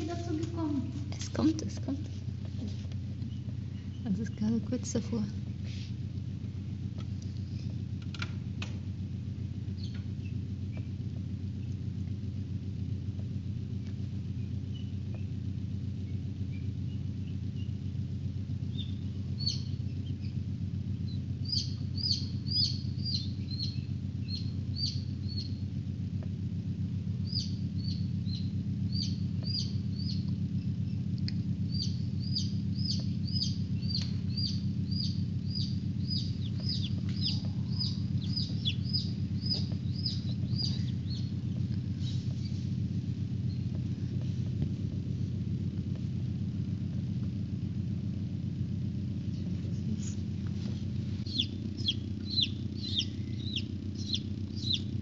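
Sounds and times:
steady low hum: 0.0s - 55.0s
chicks peeping: 9.7s - 10.9s, 18.7s - 20.4s, 21.0s - 25.6s, 27.2s - 42.8s, 49.4s - 55.0s.

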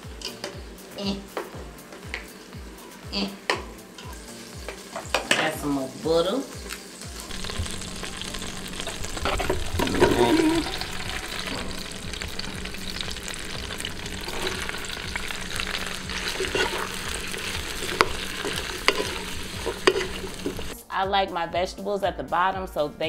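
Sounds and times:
vegetables sizzling in butter: 3.8s - 20.8s
wooden spatula scraping pot: 8.8s - 20.8s.

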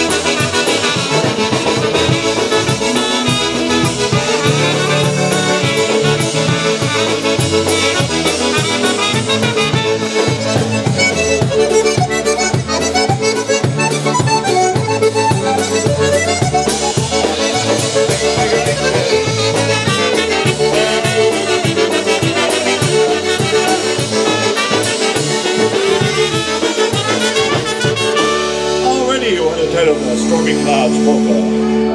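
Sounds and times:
polka band playing: 0.0s - 31.9s.

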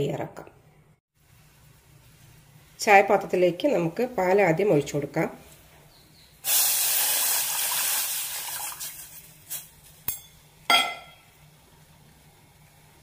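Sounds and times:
liquid pouring into saucepan: 6.5s - 9.2s
metallic clank with ring: 10.1s - 11.3s.

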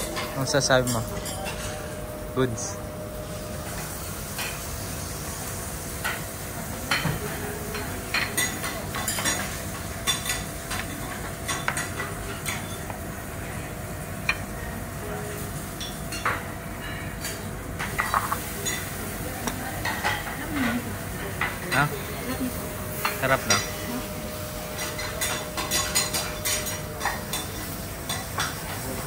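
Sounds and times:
metal utensils clinking on griddle: 24.6s - 29.0s.

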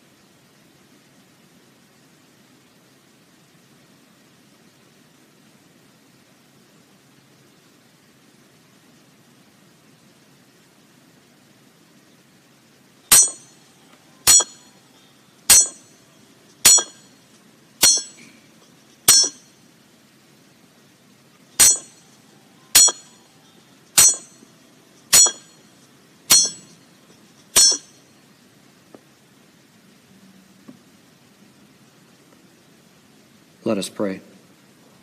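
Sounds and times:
hammer striking iron nail: 13.1s - 13.6s, 14.3s - 14.7s, 15.5s - 15.9s, 16.6s - 17.1s, 17.8s - 18.3s, 19.1s - 19.5s, 21.6s - 22.0s, 22.8s - 23.2s, 24.0s - 24.4s, 25.1s - 25.6s, 26.3s - 26.8s, 27.6s - 28.0s.

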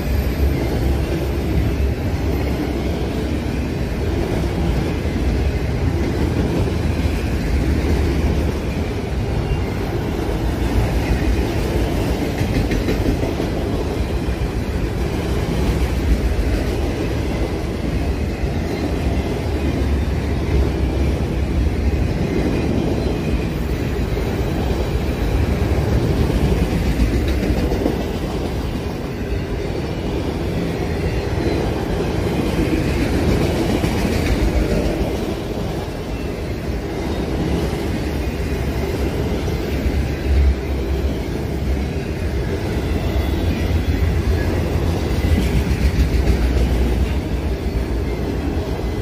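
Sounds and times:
freight train wheels on rails: 0.0s - 49.0s
train bump: 12.0s - 13.7s, 26.3s - 28.6s, 45.1s - 47.2s.

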